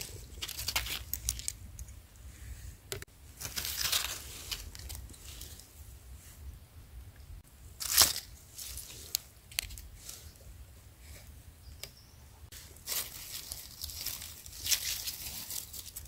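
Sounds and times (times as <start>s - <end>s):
dry leaves rustling and crackling: 0.0s - 1.6s, 3.4s - 5.8s, 7.8s - 10.3s, 12.5s - 16.0s.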